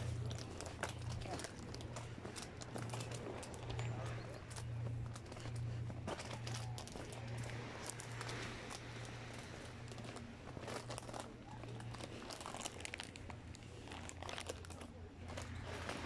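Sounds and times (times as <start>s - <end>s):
footsteps on dry leaves and twigs: 0.0s - 16.0s
steady low hum: 0.0s - 16.0s.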